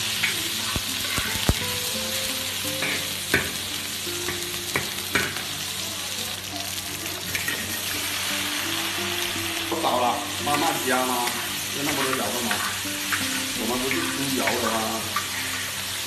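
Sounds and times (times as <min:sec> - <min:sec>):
chillies sizzling in hot oil: 0:00.0 - 0:16.0
metal spatula scraping a wok: 0:11.3 - 0:16.0.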